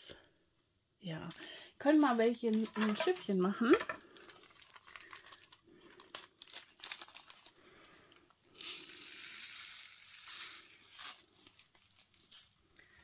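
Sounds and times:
plastic bag crinkling: 0:01.1 - 0:13.0
small beads poured into tray: 0:08.6 - 0:12.3.

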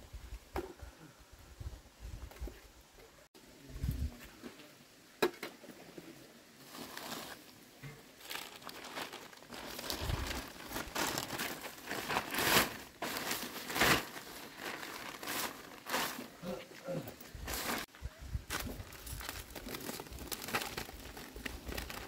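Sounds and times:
plastic sheet crinkling: 0:06.6 - 0:07.5, 0:08.2 - 0:16.6, 0:17.4 - 0:17.9, 0:18.5 - 0:22.0.

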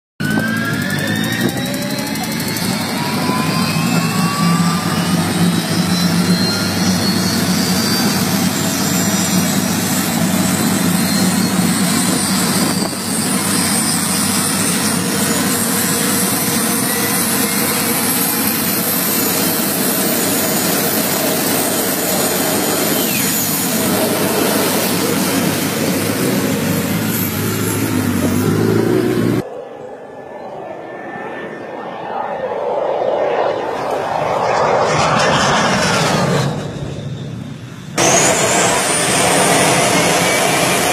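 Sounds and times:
gas turbine engine whine: 0:00.2 - 0:40.9
jet-like engine rush: 0:00.2 - 0:40.9.

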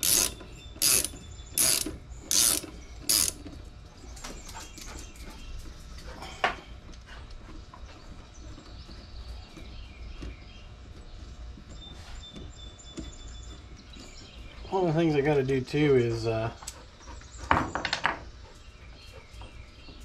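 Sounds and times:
ratchet wrench ratcheting: 0:00.0 - 0:03.4.

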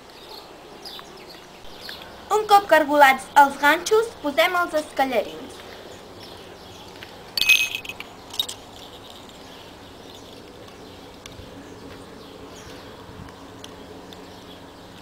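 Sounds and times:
small metal bells ringing: 0:07.4 - 0:09.4.

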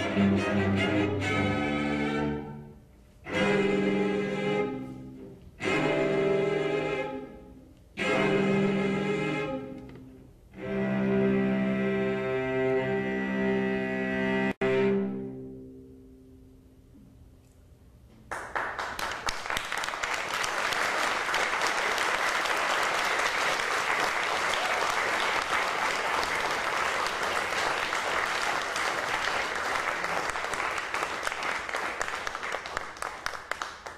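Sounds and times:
audience applauding: 0:18.3 - 0:33.9.

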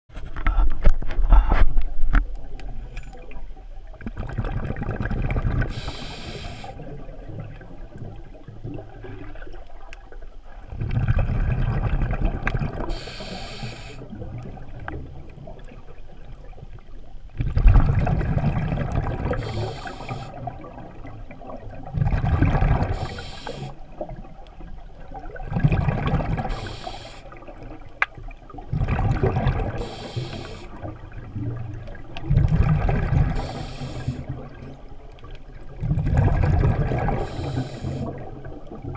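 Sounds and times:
murmur of water: 0:00.1 - 0:38.9
exhaled bubbles gushing: 0:02.4 - 0:38.9
regulator inhale hiss: 0:05.7 - 0:06.8, 0:12.8 - 0:14.1, 0:19.3 - 0:20.4, 0:22.8 - 0:23.9, 0:26.5 - 0:27.4, 0:29.7 - 0:30.8, 0:33.4 - 0:34.3, 0:37.2 - 0:38.2.

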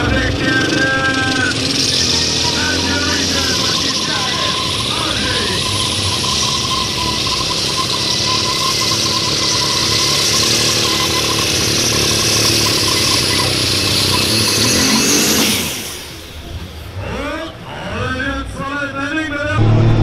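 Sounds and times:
high whine: 0:00.0 - 0:16.8, 0:19.4 - 0:20.0
tractor diesel engine at full throttle: 0:00.0 - 0:20.0.

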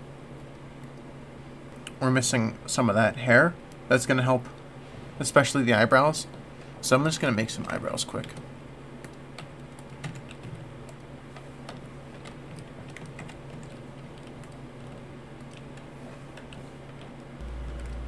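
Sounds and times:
steady low hum: 0:00.0 - 0:18.0
computer keyboard keystrokes: 0:09.0 - 0:18.0.

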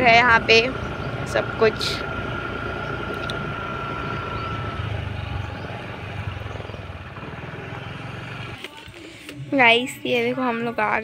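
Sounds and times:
wind and road noise: 0:00.0 - 0:08.6
scooter engine running: 0:00.0 - 0:08.8.

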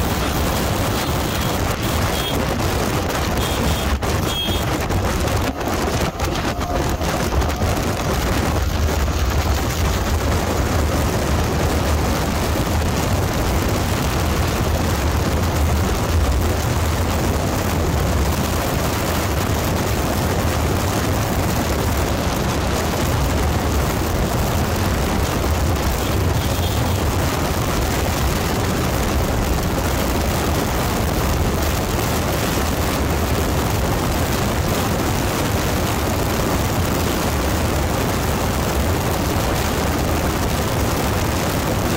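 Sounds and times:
motorcycle engine drone: 0:00.0 - 0:41.9
wind rushing over microphone: 0:00.0 - 0:41.9.

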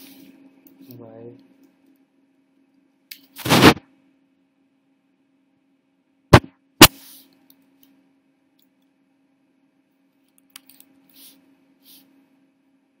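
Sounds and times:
faint steady hum: 0:00.0 - 0:13.0
computer keyboard or mouse clicks: 0:10.3 - 0:10.9.

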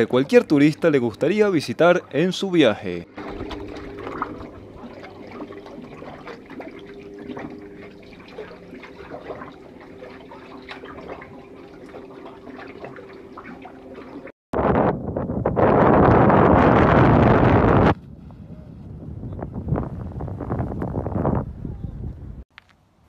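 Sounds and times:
water lapping and dripping: 0:00.0 - 0:14.4
low hum: 0:00.0 - 0:22.4
small splashes and trickles: 0:03.1 - 0:14.3.

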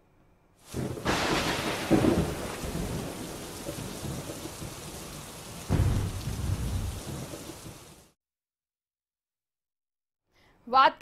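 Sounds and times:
heavy rain: 0:00.6 - 0:08.2
loud thunderclap: 0:00.7 - 0:08.1
rolling thunder: 0:00.7 - 0:08.1.

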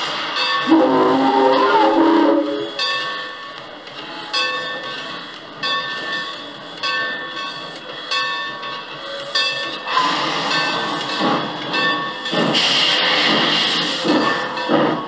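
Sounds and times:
steam hissing: 0:00.0 - 0:03.2, 0:09.0 - 0:15.0
locomotive bell ringing: 0:00.2 - 0:12.6, 0:14.0 - 0:15.0.

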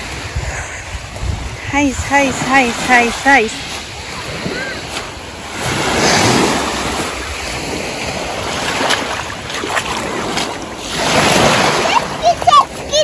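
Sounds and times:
waves washing up pebble beach: 0:00.0 - 0:13.0
wind buffeting microphone: 0:00.0 - 0:13.0.

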